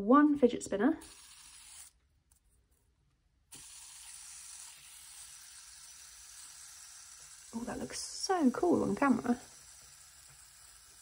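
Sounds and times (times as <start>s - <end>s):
fidget spinner whirring: 1.0s - 2.0s, 3.5s - 11.0s.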